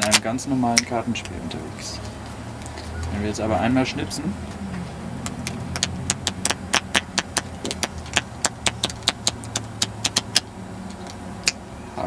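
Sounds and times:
playing cards flicking: 5.3 - 10.4.

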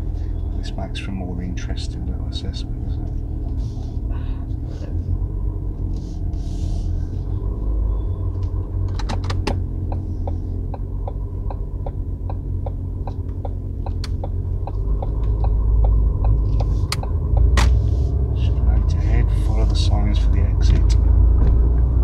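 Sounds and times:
engine and road rumble: 0.0 - 22.0
turn indicator ticking: 7.6 - 17.7.

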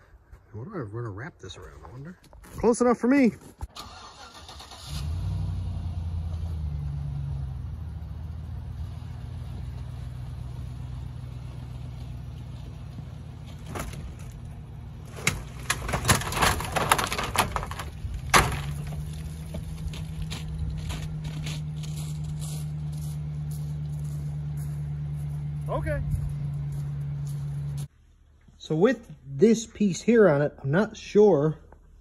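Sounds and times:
pickup truck engine running: 4.8 - 27.9
metal clanks and scraping: 13.4 - 22.4.

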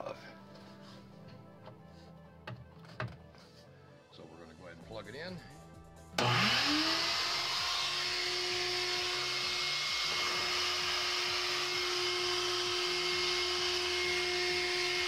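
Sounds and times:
shop vacuum whining: 6.2 - 15.0.

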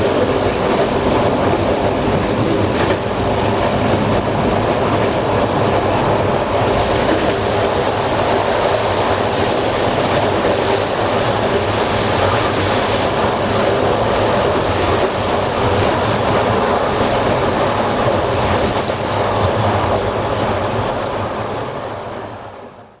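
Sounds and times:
train wheels rumbling on rails: 0.0 - 23.0.

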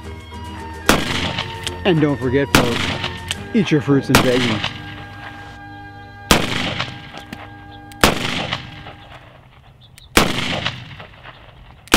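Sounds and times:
gunshots with echo: 0.9 - 1.7, 2.5 - 3.4, 4.0 - 5.4, 6.3 - 9.6, 10.2 - 11.9.

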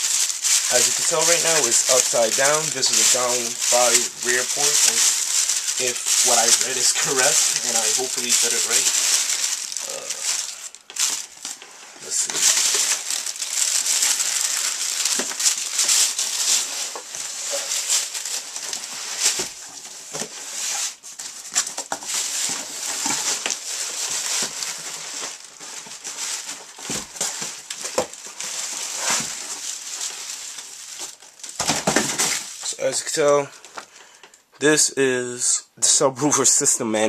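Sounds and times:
cardboard being handled and scraped: 0.0 - 14.5, 15.1 - 33.1
plastic bag crinkling: 0.0 - 34.3.

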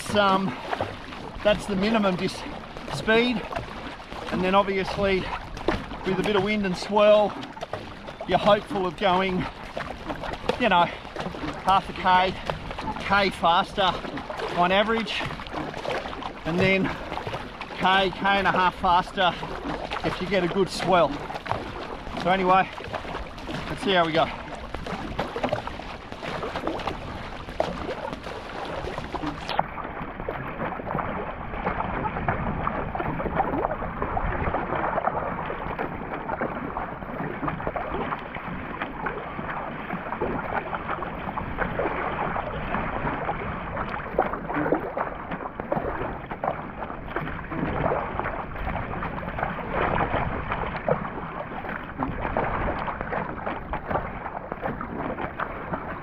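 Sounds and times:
water splashing at paddle blades: 0.0 - 56.0
wind noise on microphone: 22.8 - 56.0.

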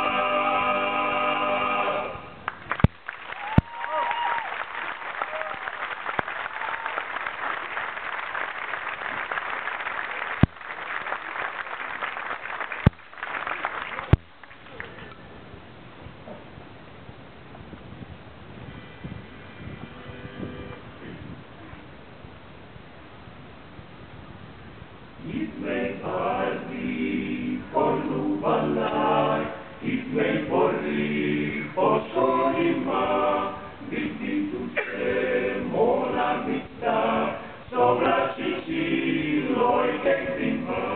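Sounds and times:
male vocal group singing in harmony: 0.0 - 2.4, 25.2 - 40.9
audience applause: 2.5 - 15.1.

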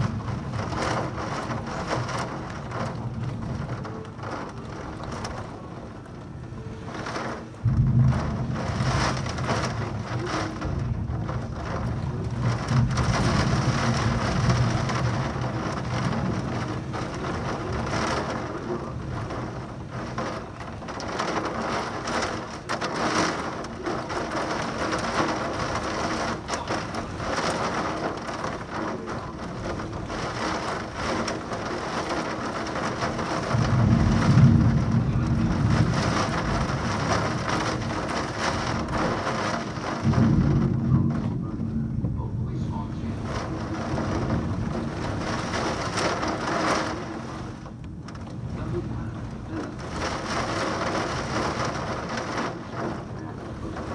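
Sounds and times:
heavy rain pouring: 0.0 - 53.9
thunder rumbling: 0.0 - 53.9.

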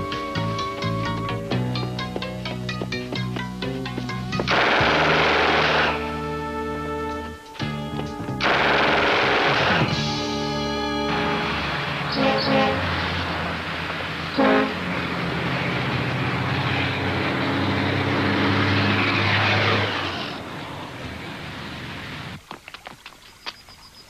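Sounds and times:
vehicle passing rumble: 0.0 - 22.4
short horn toot: 11.1 - 12.9.

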